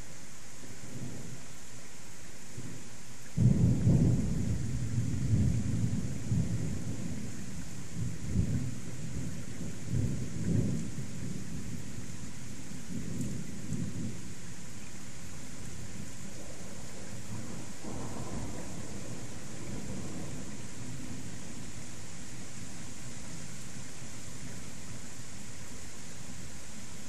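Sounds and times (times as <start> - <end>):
rain hissing: 0.0 - 27.0
thunder rumbling: 3.4 - 12.0, 15.8 - 21.9.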